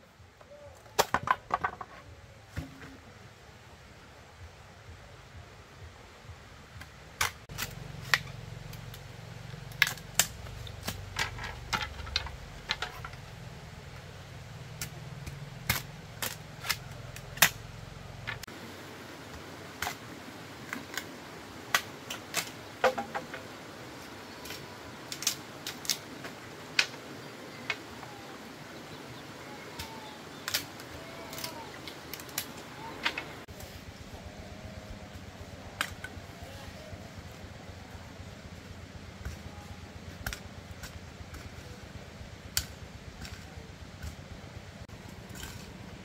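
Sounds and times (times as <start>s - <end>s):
low hum: 2.0s - 21.5s.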